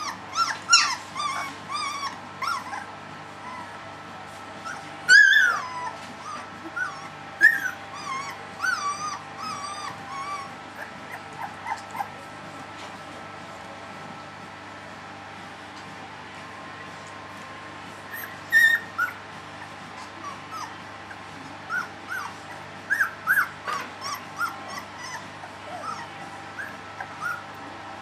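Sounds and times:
puppy whimpering: 0.0s - 3.8s, 4.6s - 12.3s, 18.1s - 27.6s.

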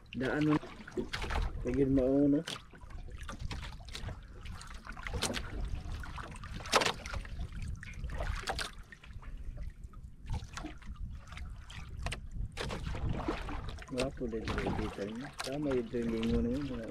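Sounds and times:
water splashing against boat hull: 0.0s - 16.9s.

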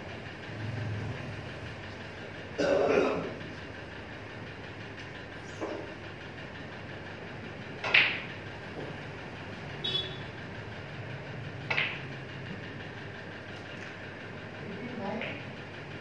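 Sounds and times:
fans humming: 0.0s - 16.0s
snooker balls clacking: 7.8s - 9.0s, 11.6s - 12.2s.

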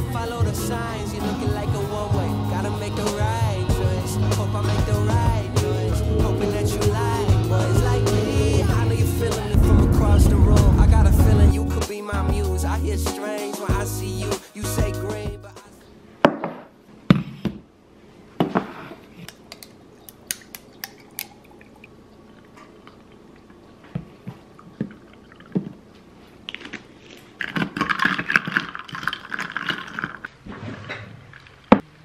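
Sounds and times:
liquid pouring: 20.1s - 25.9s, 27.8s - 31.7s.

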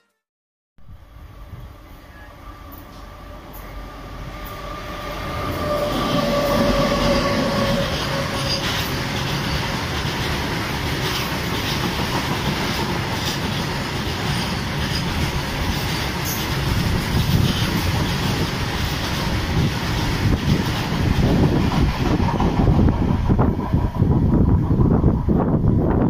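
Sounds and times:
electric locomotive whine: 0.9s - 26.0s
train rumble and wheel clatter: 1.1s - 26.0s.

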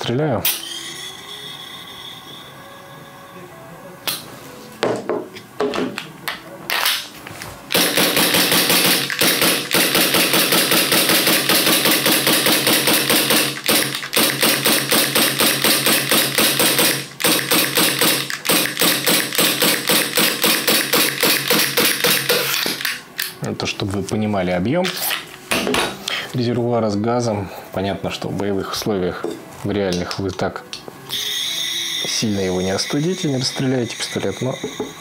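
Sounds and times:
magazine clicking in: 7.7s - 10.5s, 11.2s - 23.4s
airsoft pistol shots: 7.7s - 23.0s.

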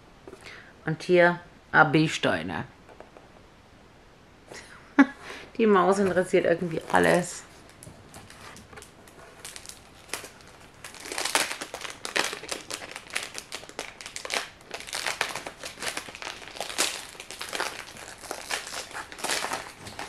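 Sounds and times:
plastic packaging crinkling: 6.1s - 20.0s.

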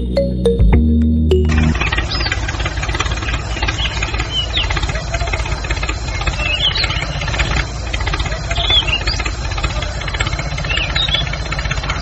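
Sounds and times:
music: 0.0s - 1.8s
toy tractor chugging: 1.5s - 12.0s.

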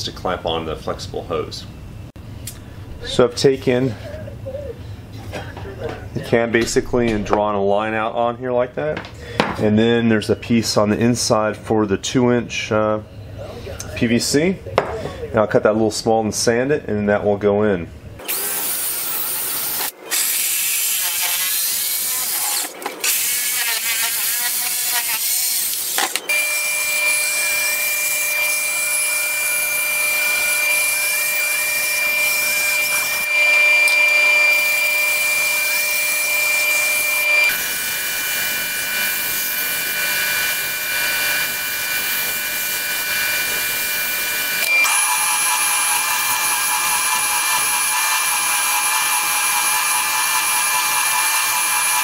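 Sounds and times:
bandsaw whine: 18.2s - 52.0s
drill boring into wood: 18.2s - 52.0s
spindle sander sanding: 18.3s - 52.0s.

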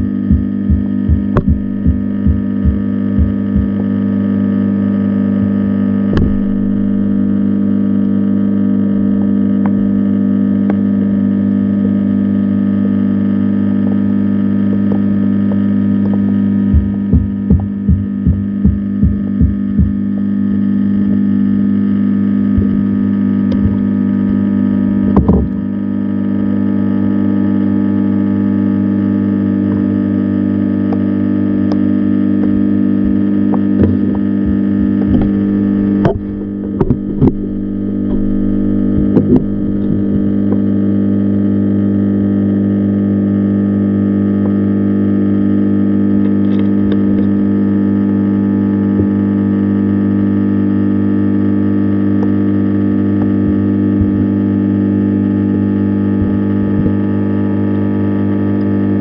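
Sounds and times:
sharp knocks: 0.0s - 3.8s, 5.4s - 7.2s, 33.0s - 40.6s
loud hum of held tones: 0.0s - 59.0s.

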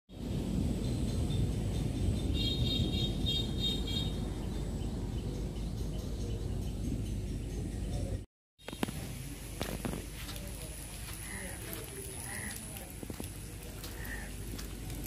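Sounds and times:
steady low rumble: 0.1s - 15.0s
birds chirping: 0.6s - 8.3s, 10.2s - 15.0s.

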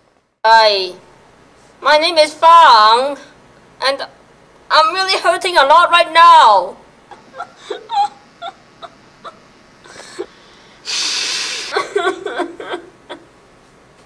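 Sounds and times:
wavering whimpering cries: 7.1s - 10.4s
person sobbing: 7.1s - 13.3s
long loud breath: 9.9s - 11.8s.

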